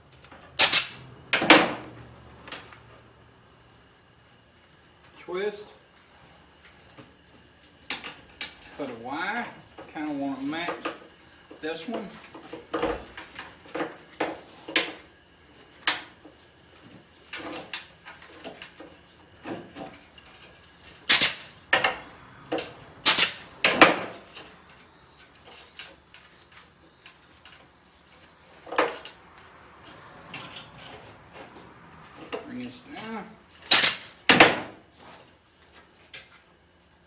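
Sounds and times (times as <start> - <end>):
pneumatic ring gun shots: 0.6 - 1.8, 21.0 - 21.6, 23.0 - 24.1, 33.6 - 34.7.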